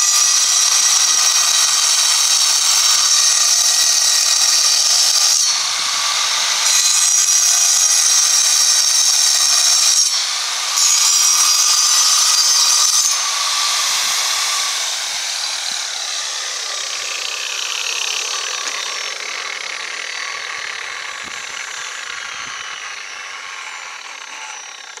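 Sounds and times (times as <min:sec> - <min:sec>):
angle grinder cutting stone: 0:00.0 - 0:25.0.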